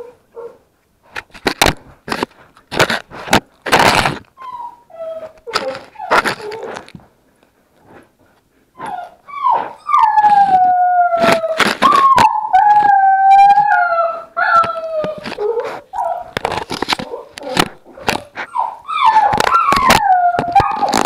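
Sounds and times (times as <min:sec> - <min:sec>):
puppies whining and howling: 0:04.4 - 0:06.8, 0:08.8 - 0:21.0.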